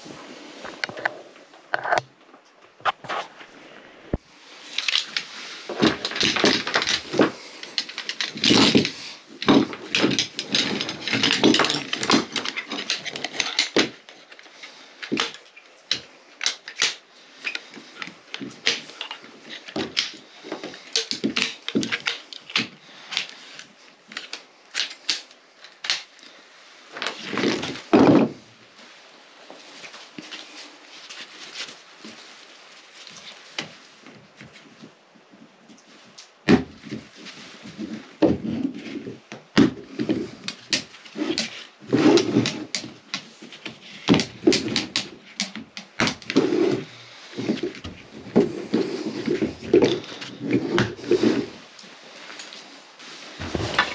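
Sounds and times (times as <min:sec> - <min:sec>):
metal frame poles clicking: 0:04.7 - 0:26.2
nylon fabric rustling: 0:46.3 - 0:53.9.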